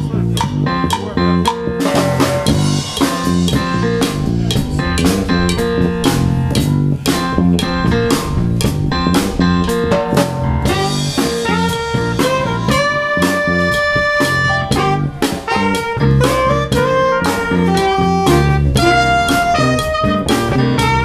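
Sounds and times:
drum kit: 0.0 - 21.0
electric bass: 0.0 - 21.0
keyboard: 0.0 - 21.0
trumpet: 9.7 - 21.0
saxophone: 10.6 - 21.0.

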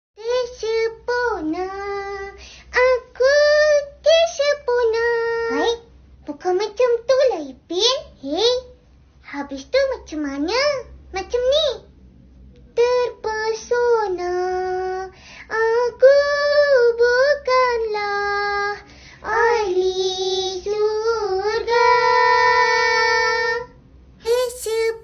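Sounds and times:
child-like voice singing: 24.3 - 25.0.

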